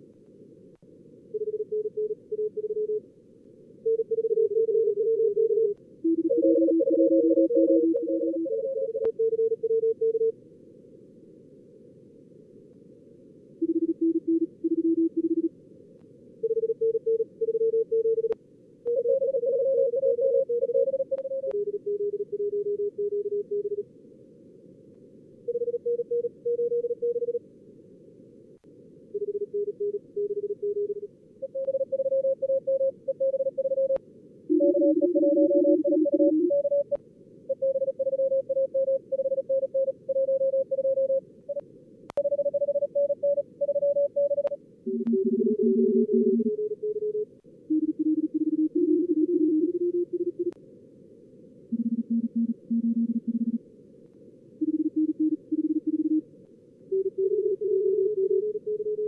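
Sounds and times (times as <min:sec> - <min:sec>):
morse code tones: 0:03.9 - 0:10.2, 0:29.2 - 0:41.2, 0:42.2 - 0:50.5, 0:51.7 - 0:53.6, 0:54.6 - 0:56.2.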